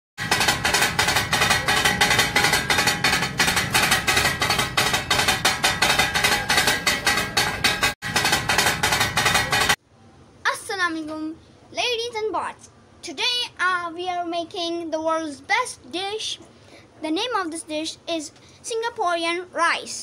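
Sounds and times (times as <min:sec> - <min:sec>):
upbeat music with fast percussion: 0:00.2 - 0:09.8.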